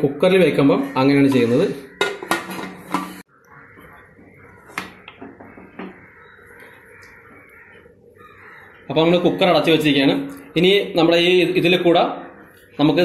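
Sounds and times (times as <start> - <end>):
metal pot lid clinking: 1.3 - 3.2.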